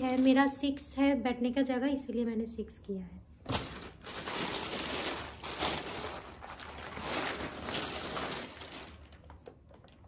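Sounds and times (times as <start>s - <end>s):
packaging rustling and crinkling: 0.0s - 0.6s, 3.5s - 10.0s.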